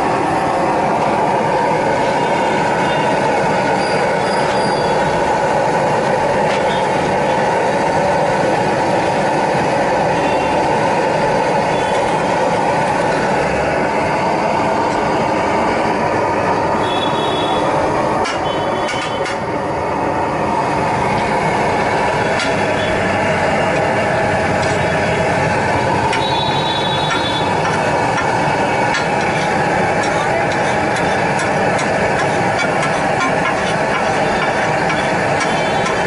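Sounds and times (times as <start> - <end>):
busy street noise: 0.0 - 36.0
food sizzling on iron griddle: 27.0 - 36.0.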